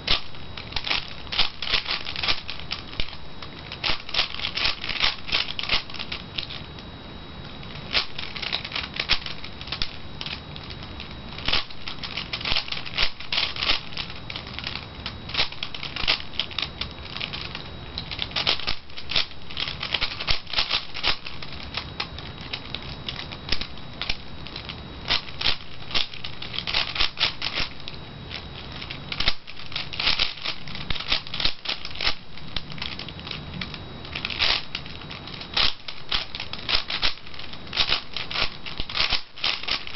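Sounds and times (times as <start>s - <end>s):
puzzle cube layers clicking: 11.4s - 21.6s, 29.1s - 33.4s, 34.2s - 39.9s.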